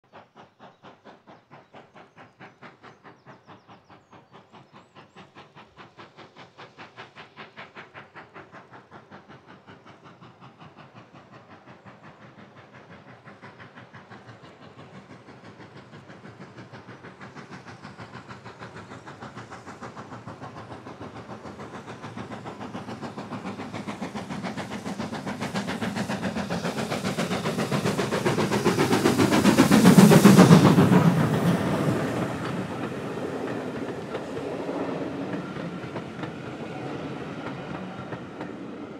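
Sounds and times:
steam locomotive exhaust beating: 0:00.0 - 0:38.9
train coaches rolling by: 0:00.0 - 0:38.9.

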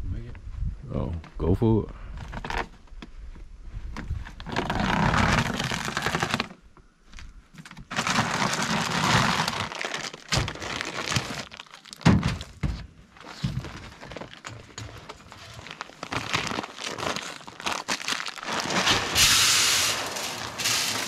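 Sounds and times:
corn kernels pouring: 0:07.9 - 0:10.3, 0:15.6 - 0:21.0.

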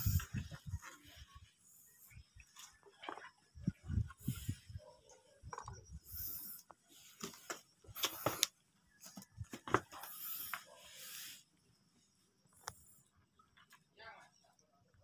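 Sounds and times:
rustling hiss: 0:00.0 - 0:00.7, 0:09.9 - 0:11.8.

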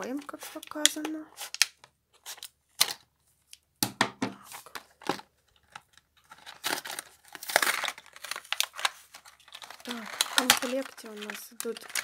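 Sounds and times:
plastic packaging crinkling and tearing: 0:04.5 - 0:12.0
cardboard backing being torn: 0:06.4 - 0:08.9, 0:09.5 - 0:12.0.

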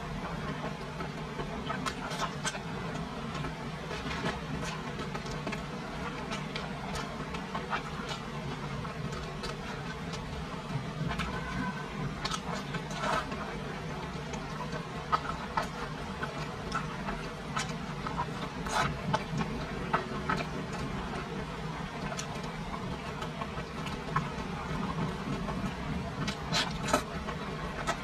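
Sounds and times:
steady low hum: 0:00.0 - 0:28.0
wet chewing mouth sounds: 0:01.1 - 0:28.0.

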